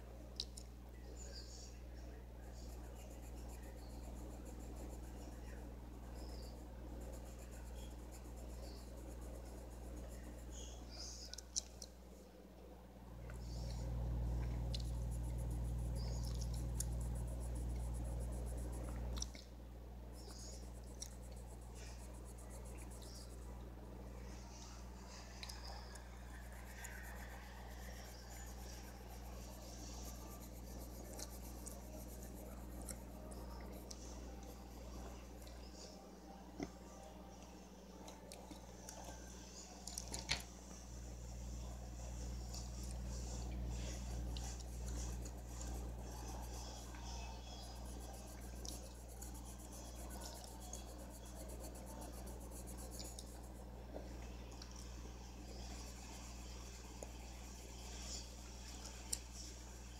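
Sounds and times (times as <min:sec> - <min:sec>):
low electrical hum: 0:00.0 - 0:59.9
pencil scratching on paper: 0:02.4 - 0:11.2, 0:14.6 - 0:19.0, 0:20.1 - 0:23.5, 0:26.2 - 0:34.8, 0:42.6 - 0:53.7.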